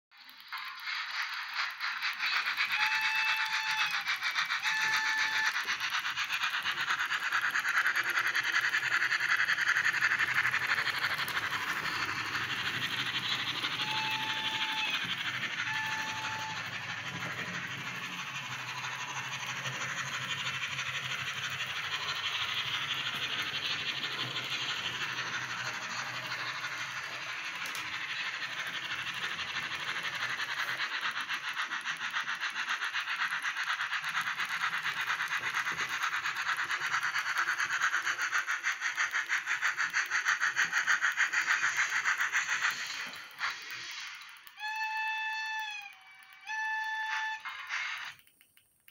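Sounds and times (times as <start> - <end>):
model wheels rattling on track: 0.2 - 48.9
tinny steam chuffing: 0.2 - 48.9
whistle tones: 0.6 - 6.4, 10.4 - 32.5, 41.6 - 48.3.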